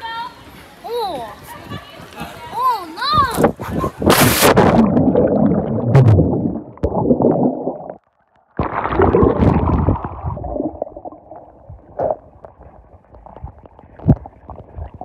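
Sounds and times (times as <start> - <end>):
underwater bubbling: 3.9 - 15.0
person splashing into water: 8.6 - 11.2.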